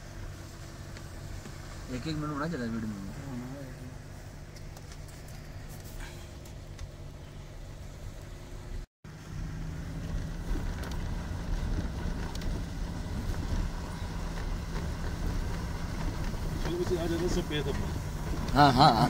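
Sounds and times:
car engine and road hum: 0.0 - 19.0
wind buffeting microphone: 9.8 - 18.7.

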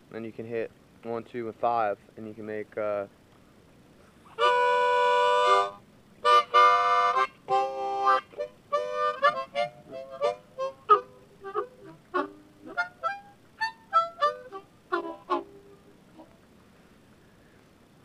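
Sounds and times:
harmonica playing: 4.3 - 16.3.

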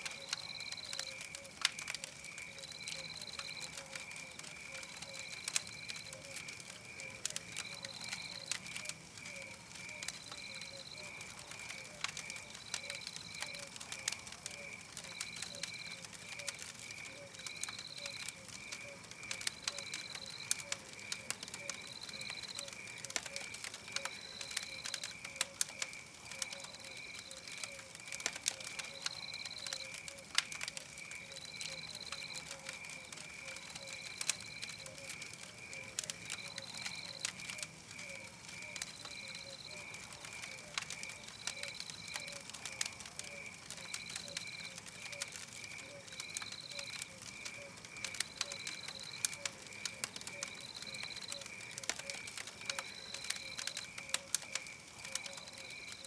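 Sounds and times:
wood fire crackling and popping: 0.0 - 56.0.

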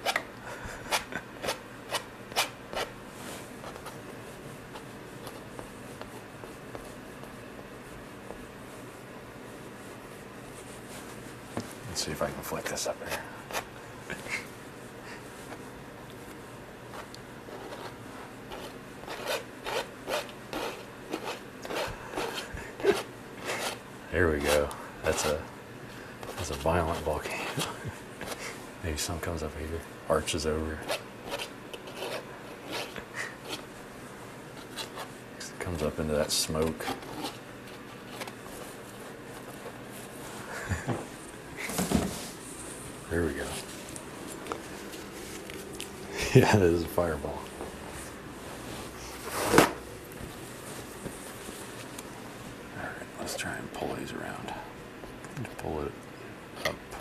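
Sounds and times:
low room hum: 0.0 - 57.0
brush on canvas: 2.7 - 11.8, 16.3 - 25.4, 26.2 - 28.4
palette knife scraping canvas: 17.5 - 23.8, 30.8 - 33.7, 34.6 - 35.1, 36.8 - 38.4.

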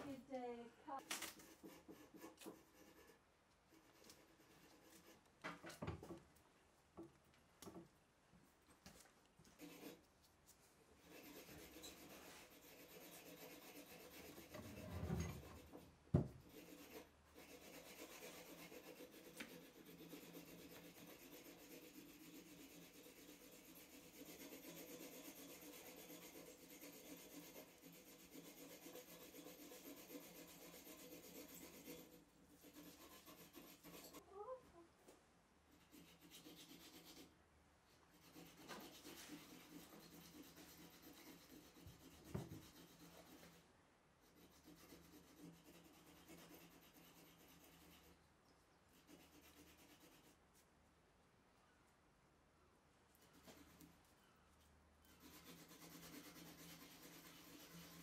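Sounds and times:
hand rubbing and scraping metal: 11.0 - 34.2.

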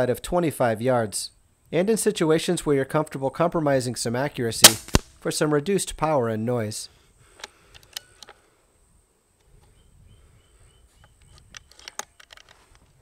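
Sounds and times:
sharp clicks: 4.6 - 5.1.

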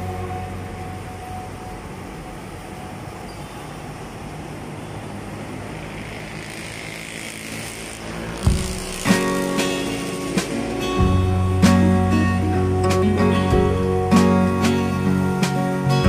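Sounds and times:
vehicle passing: 0.0 - 15.8
road traffic noise: 0.0 - 16.0
sharp thump: 8.5 - 9.2.

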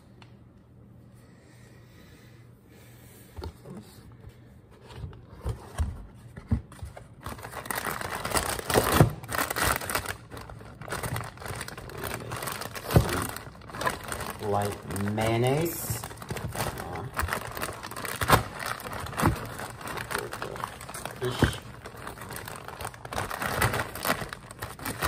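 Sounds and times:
packaging rustling: 6.4 - 25.0.

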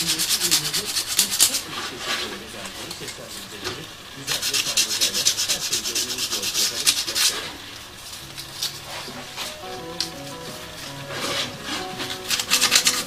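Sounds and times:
sandpaper scraping on brass: 4.3 - 7.6, 11.2 - 13.0.

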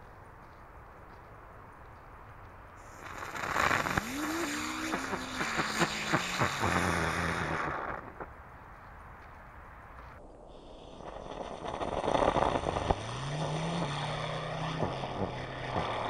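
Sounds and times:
firework hissing: 2.8 - 8.3
firework crackles: 2.8 - 8.4, 10.2 - 13.4
spinning firework whirring tone: 2.8 - 8.4, 10.2 - 16.0.

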